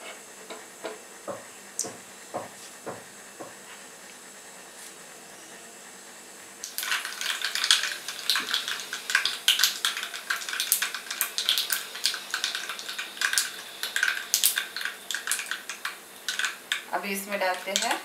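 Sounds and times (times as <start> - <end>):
seeds popping in hot oil: 6.6 - 18.0.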